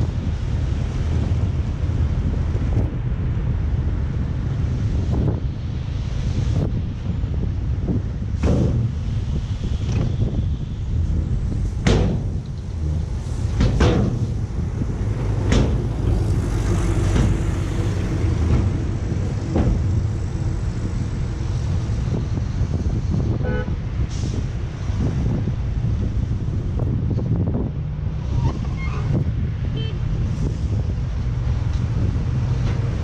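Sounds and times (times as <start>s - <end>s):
diesel truck engines rumbling: 0.0s - 33.0s
sharp knocks: 11.8s - 12.4s, 13.5s - 14.3s, 15.3s - 16.3s.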